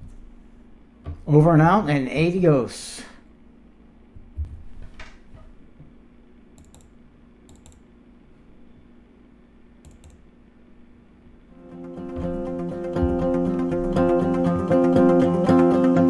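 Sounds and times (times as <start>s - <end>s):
mouse clicks: 6.6s - 7.9s, 9.8s - 10.2s.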